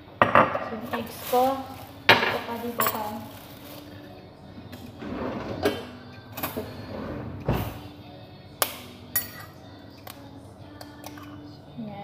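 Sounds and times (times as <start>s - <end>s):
faint background music: 0.0s - 12.0s.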